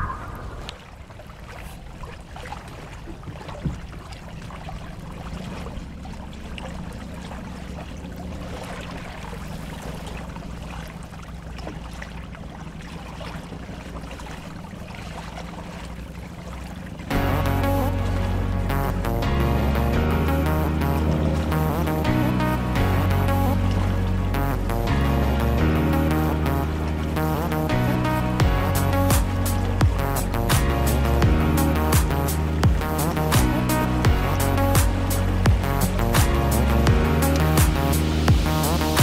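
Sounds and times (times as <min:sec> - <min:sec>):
steady low rumble: 0:00.0 - 0:01.4, 0:03.8 - 0:39.0
water splashing along boat hull: 0:00.0 - 0:39.0
music: 0:17.1 - 0:39.0.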